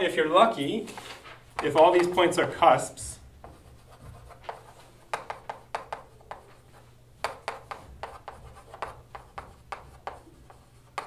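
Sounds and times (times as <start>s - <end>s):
chalk writing on chalkboard: 3.4s - 11.0s.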